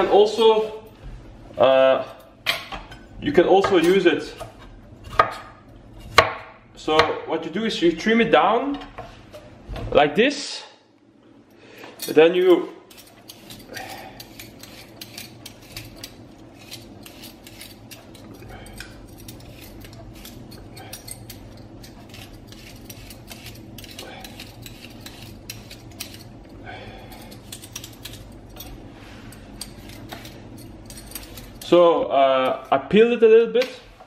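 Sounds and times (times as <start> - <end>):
steady low hum: 0.0 - 34.0
vegetable peeler scraping stalk: 13.2 - 26.3.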